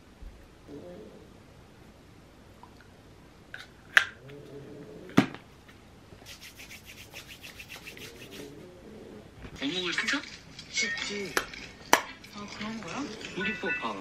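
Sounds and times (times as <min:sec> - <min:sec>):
hands rubbing together: 0:06.2 - 0:08.6.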